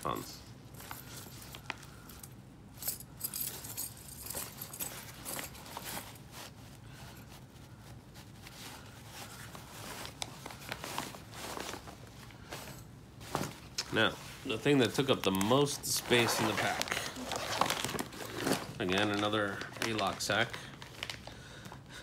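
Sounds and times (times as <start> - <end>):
rustling of pack fabric: 0.1 - 21.9
metal chains clinking: 0.8 - 6.0.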